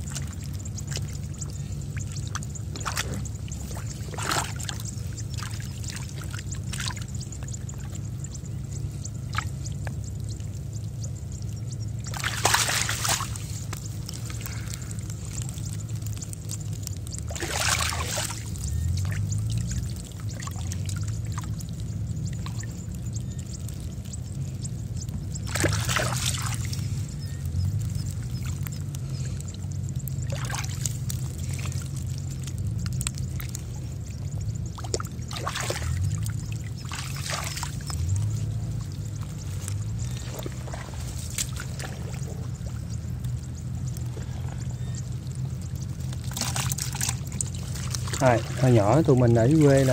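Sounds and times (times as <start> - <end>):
steady low hum: 0.0 - 49.9
water splashing and pouring: 2.0 - 7.0, 12.0 - 21.7, 25.4 - 27.0, 30.2 - 34.0, 34.7 - 42.9, 45.5 - 49.9.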